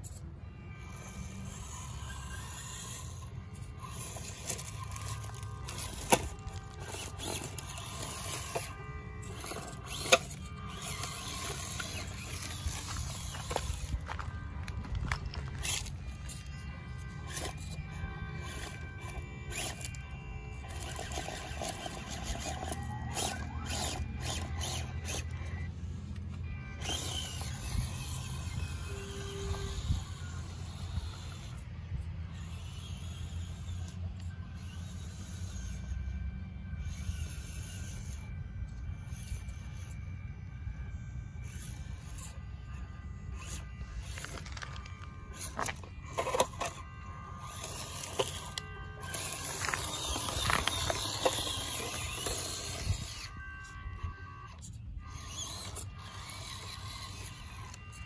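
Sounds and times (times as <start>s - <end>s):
rc car motor whining: 0.0s - 58.0s
tires scraping on stone: 0.0s - 58.0s.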